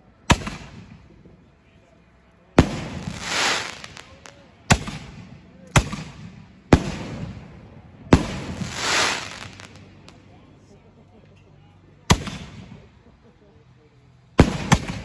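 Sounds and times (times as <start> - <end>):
firework shells banging: 8.2 - 10.2.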